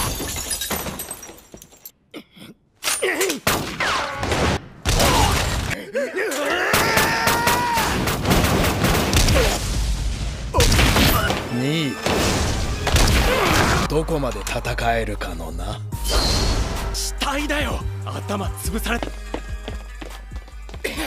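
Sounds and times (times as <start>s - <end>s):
crashing and smashing impacts: 0.0s - 1.8s, 7.9s - 13.9s
men groaning: 5.1s - 8.1s.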